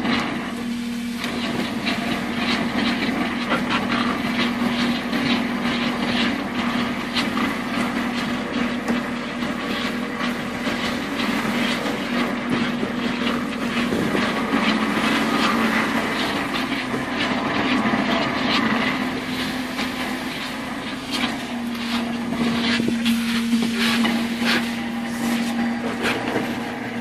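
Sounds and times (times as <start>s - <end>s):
boat engine humming: 0.0s - 27.0s.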